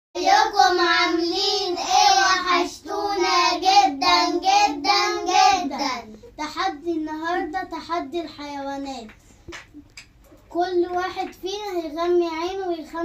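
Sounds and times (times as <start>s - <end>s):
children singing in unison: 0.2s - 5.8s.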